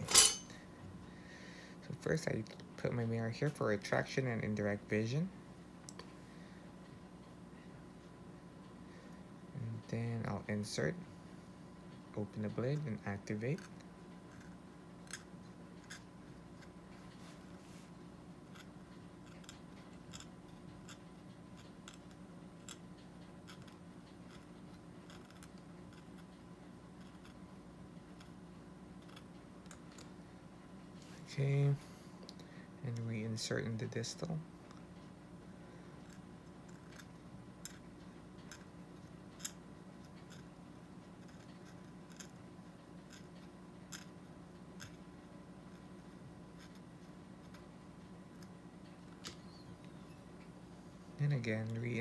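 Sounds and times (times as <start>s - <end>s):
low steady hum: 0.0s - 52.0s
metal tool ticking and scraping plastic: 23.5s - 26.3s.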